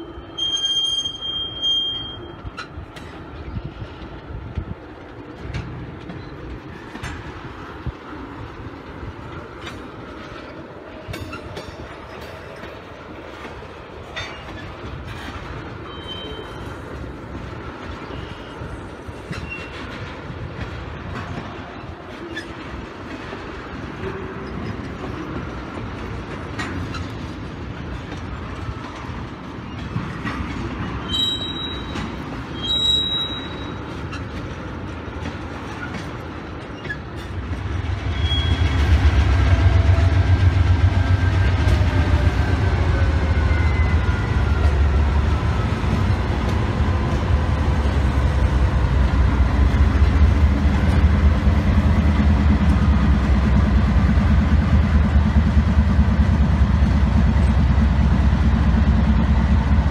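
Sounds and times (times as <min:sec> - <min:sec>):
high wheel squeals: 0:00.0 - 0:02.7, 0:31.0 - 0:34.3, 0:38.1 - 0:38.8
diesel locomotive rumble: 0:02.1 - 0:59.9
train wheels clicking over rail joints: 0:02.3 - 0:59.9.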